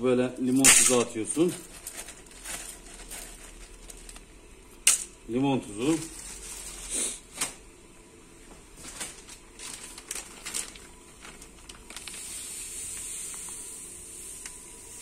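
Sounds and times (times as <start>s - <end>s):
faint steady hiss: 0.0s - 15.0s.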